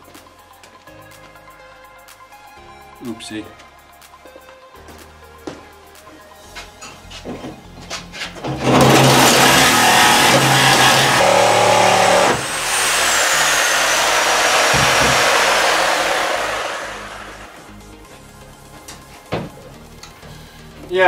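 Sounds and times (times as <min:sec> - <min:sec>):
electric saw cutting sheet steel: 0:08.6 - 0:17.7.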